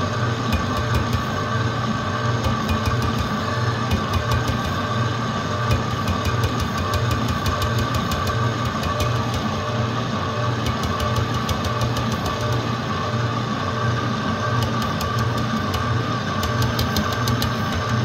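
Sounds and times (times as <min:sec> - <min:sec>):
electric stand mixer running: 0:00.0 - 0:18.0
whisk ticking in batter: 0:10.6 - 0:12.6, 0:14.6 - 0:18.0.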